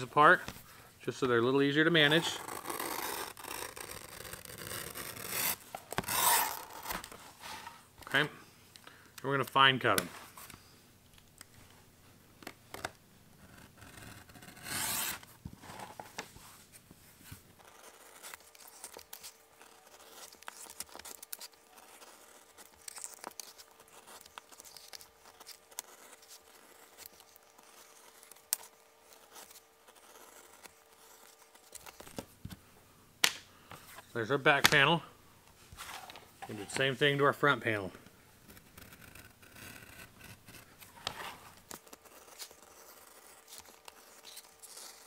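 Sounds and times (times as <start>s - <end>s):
utility knife cutting leather: 2.0s - 7.2s, 12.8s - 15.3s, 38.4s - 45.0s.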